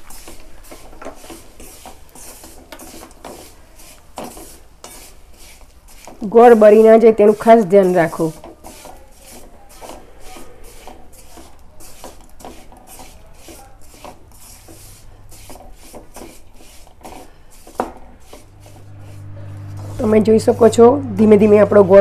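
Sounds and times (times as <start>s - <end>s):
wooden spatula scraping metal pan: 0.0s - 22.0s.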